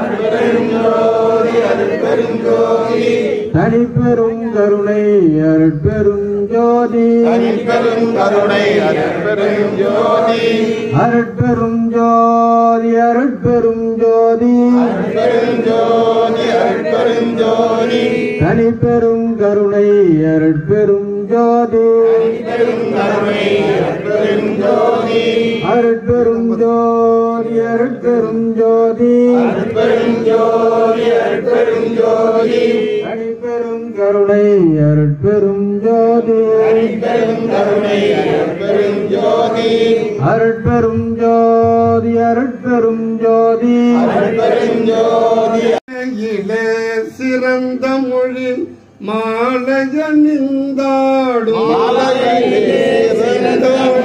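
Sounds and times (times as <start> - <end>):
man chanting through megaphone: 3.3 - 30.7.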